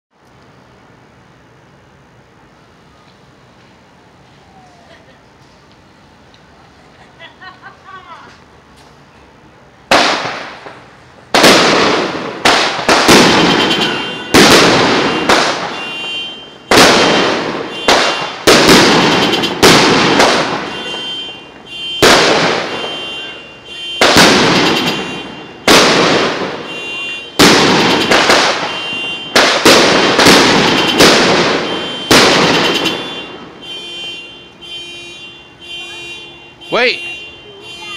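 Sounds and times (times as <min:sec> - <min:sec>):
fireworks banging: 0:09.8 - 0:37.9.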